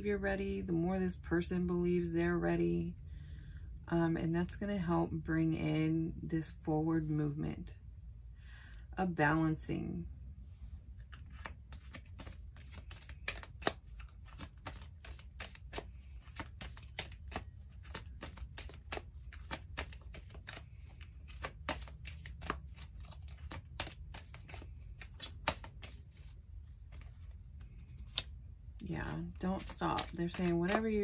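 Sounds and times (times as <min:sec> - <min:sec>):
low steady hum: 0:00.0 - 0:31.0
cards being shuffled: 0:11.0 - 0:31.0.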